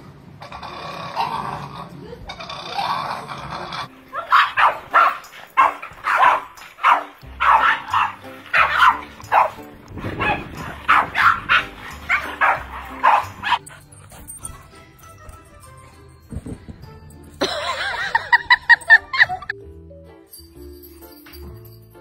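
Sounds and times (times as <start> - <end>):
background music: 3.6 - 22.0
dog barking: 4.1 - 13.6.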